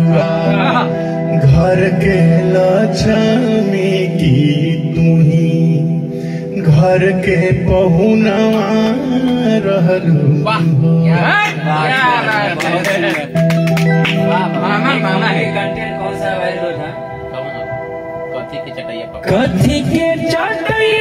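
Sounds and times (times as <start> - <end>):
man singing into a microphone: 0.0 - 12.2, 19.2 - 21.0
accompaniment of held notes: 0.0 - 21.0.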